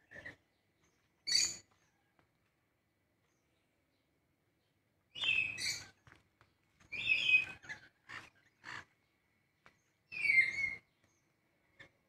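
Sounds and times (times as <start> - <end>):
parrots screeching: 7.0 - 8.9.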